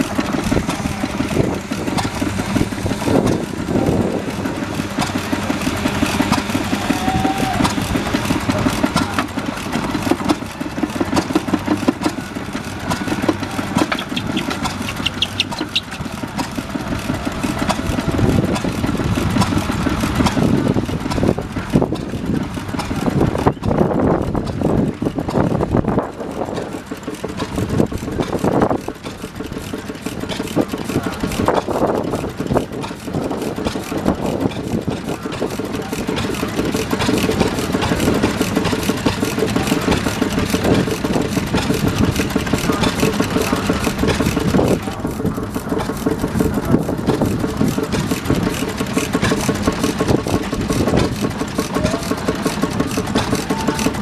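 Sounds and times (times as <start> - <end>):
stationary engines running: 0.0 - 54.0.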